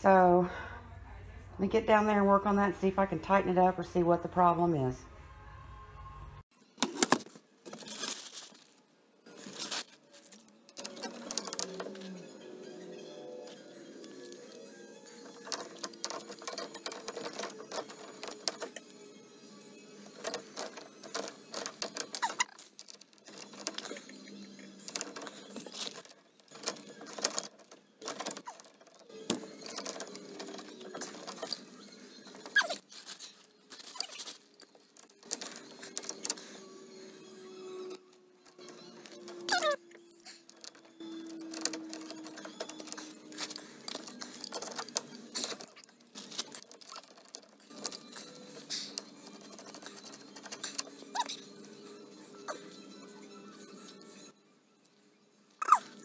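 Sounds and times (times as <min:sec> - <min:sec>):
wrenches clinking on metal pipe: 0:10.7 - 0:12.2, 0:13.4 - 0:18.9, 0:20.0 - 0:36.6, 0:37.7 - 0:51.4.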